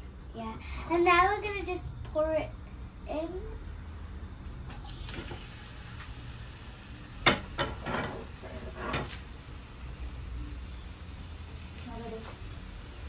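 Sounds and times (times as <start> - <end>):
chicken sizzling in oil: 4.8 - 13.0.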